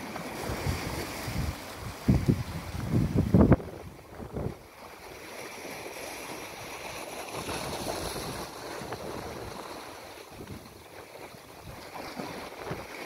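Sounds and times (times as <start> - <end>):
surf washing among rocks: 0.0 - 13.0
wind gust on microphone: 0.4 - 4.7.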